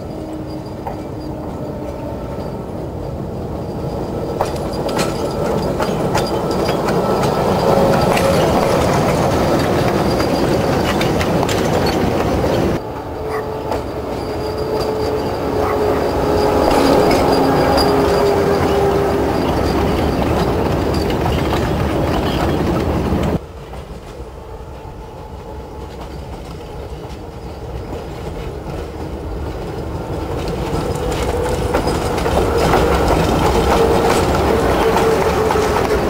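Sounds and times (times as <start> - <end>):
wagons rattling over rail joints: 0.0 - 24.2, 25.7 - 36.0
approaching electric train: 0.0 - 36.0
thin wheel squeal: 13.2 - 22.6.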